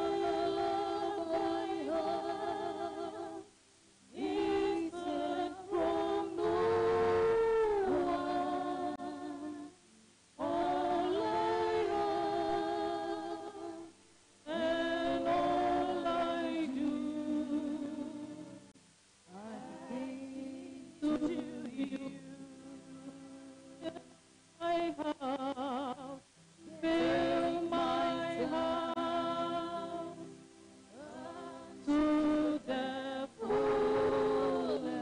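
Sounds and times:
voices singing a hymn: 0.0 - 9.8, 10.4 - 18.7, 19.3 - 35.0.

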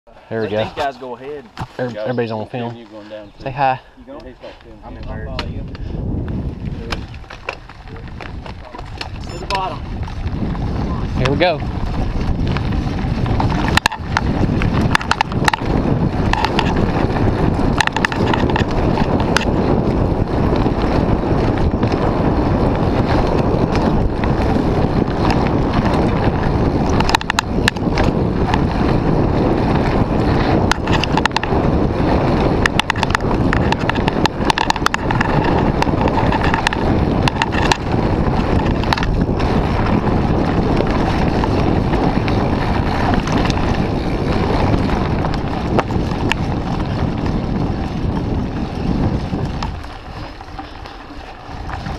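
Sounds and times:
wind on microphone: 0.1 - 51.9
bike rattling on dirt trail: 0.3 - 51.9
bike clicks and knocks: 5.0 - 51.9.

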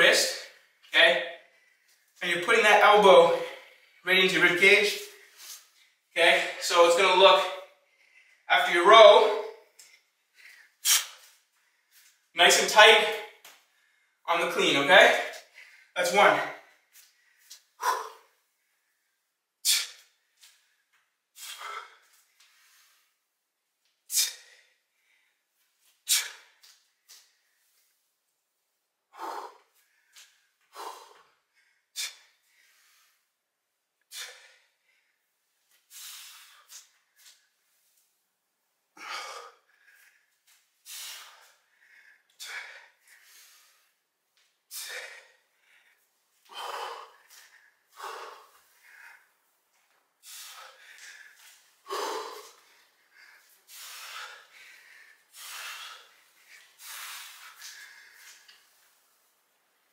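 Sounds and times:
man breathing hard: 7.8 - 8.5, 16.6 - 20.6, 29.1 - 33.4, 34.0 - 37.5, 39.0 - 44.1, 44.7 - 59.0
man exhaling sharply: 40.9 - 41.5, 44.7 - 45.3, 50.2 - 52.6, 53.7 - 56.2.

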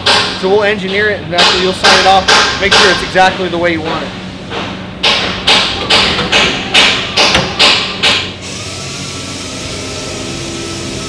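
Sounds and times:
sharp evenly spaced knocks: 0.0 - 8.3.

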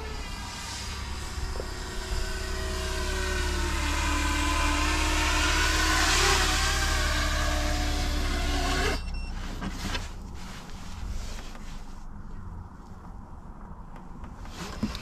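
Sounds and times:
drone motors whining: 0.0 - 9.2.

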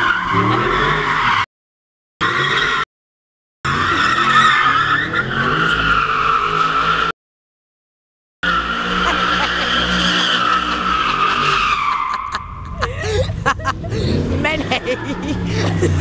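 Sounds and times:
tyres squealing: 8.4 - 12.4.

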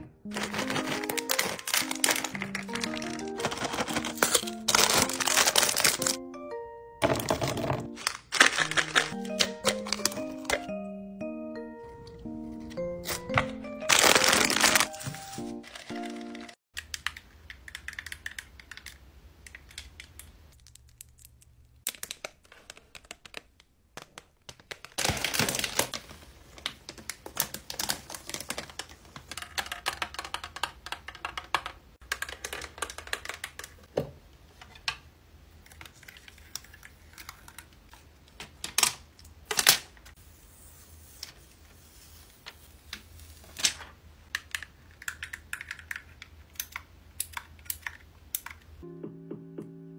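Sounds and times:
music: 0.0 - 8.0, 8.6 - 16.6, 48.8 - 49.9
candy bag rustling: 0.2 - 6.2, 7.0 - 10.7, 13.0 - 16.6, 24.6 - 29.2
crackling plastic wrap: 0.3 - 6.2, 8.0 - 10.5, 13.8 - 16.6, 24.4 - 29.6.

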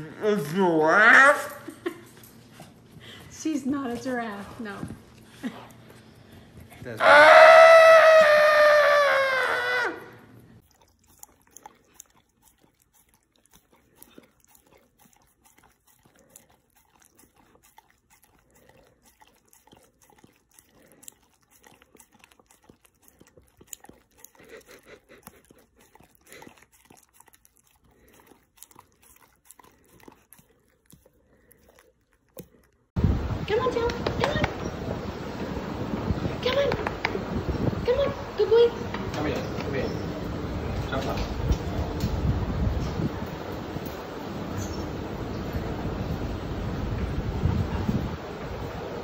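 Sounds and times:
animals licking and smacking: 0.4 - 49.0
long wailing cry: 7.0 - 10.3.

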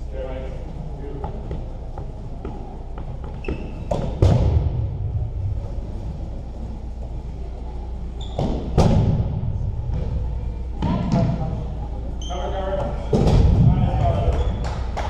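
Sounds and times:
low hum of hall: 0.0 - 15.0
dodgeballs striking with echo: 2.4 - 5.5, 8.3 - 11.7, 12.8 - 14.6.

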